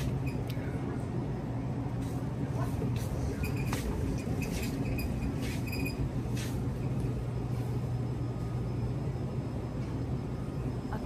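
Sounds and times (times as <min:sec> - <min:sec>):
shopping cart rolling: 0:02.6 - 0:07.7.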